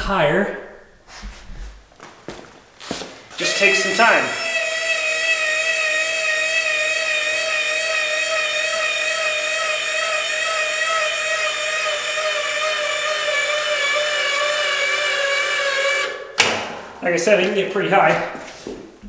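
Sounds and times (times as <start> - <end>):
electric actuator whining: 3.3 - 16.5.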